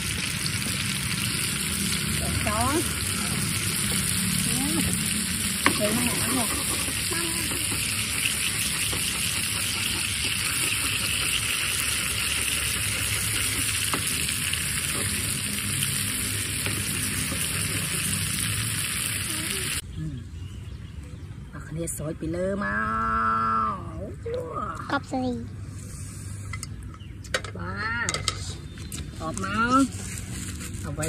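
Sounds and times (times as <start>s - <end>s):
oil sizzling in a pan: 0.0s - 19.8s.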